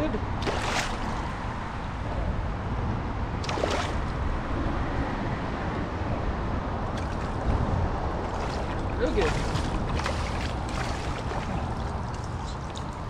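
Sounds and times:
wind buffeting microphone: 0.0s - 13.0s
water lapping against kayak: 0.4s - 1.6s, 3.4s - 4.2s, 6.9s - 13.0s.

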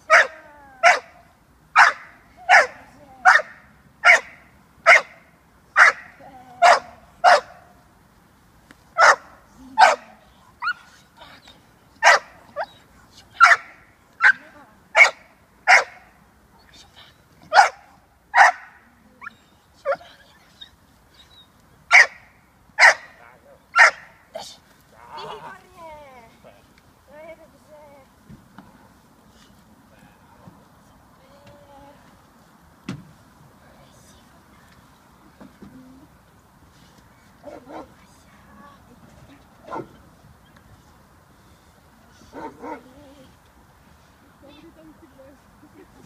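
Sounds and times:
puppy barking: 0.1s - 1.1s, 1.8s - 5.1s, 5.8s - 7.6s, 9.0s - 10.8s, 12.0s - 12.8s, 13.4s - 14.4s, 15.0s - 16.0s, 17.5s - 18.7s, 21.9s - 22.2s, 22.8s - 23.1s, 23.8s - 24.1s.

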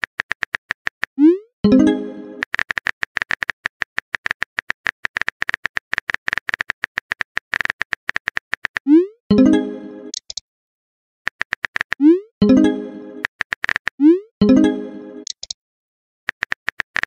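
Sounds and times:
phone keyboard typing clicks: 2.4s - 8.9s, 10.1s - 10.4s, 11.3s - 12.0s, 13.2s - 14.0s, 15.2s - 15.6s, 16.3s - 17.0s.

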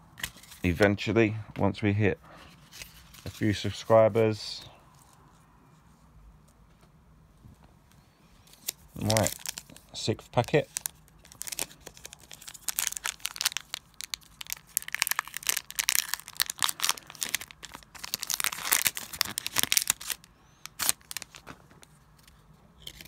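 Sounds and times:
foil wrapper tearing and crinkling: 8.5s - 21.6s.

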